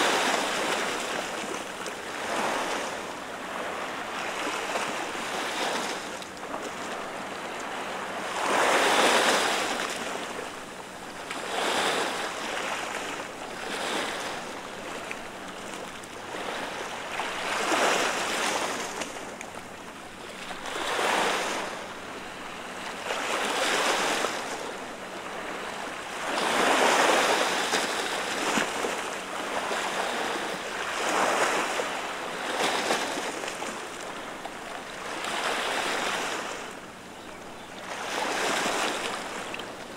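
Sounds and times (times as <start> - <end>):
waves washing over rocks: 0.0 - 1.2.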